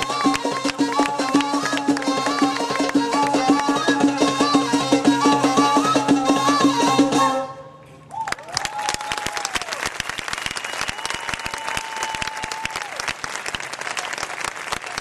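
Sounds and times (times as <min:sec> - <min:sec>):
audience applauding: 0:00.0 - 0:03.4, 0:08.1 - 0:15.0.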